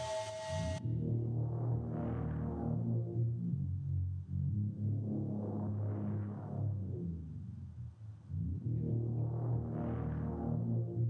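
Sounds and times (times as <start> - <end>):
ambient background music: 0.0 - 6.8.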